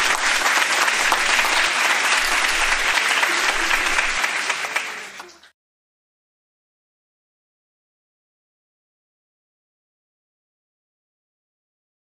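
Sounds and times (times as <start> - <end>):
audience applause: 0.0 - 5.6.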